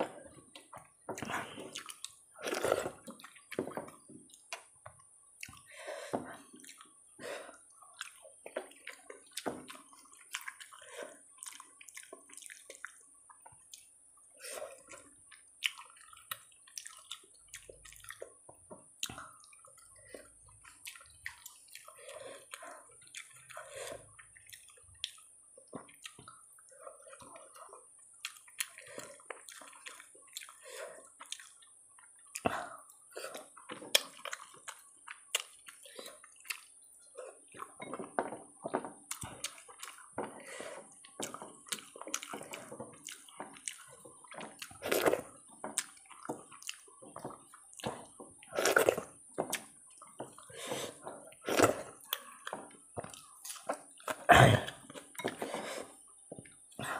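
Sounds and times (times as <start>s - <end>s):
eating smacks and clicks: 23.0s - 30.6s.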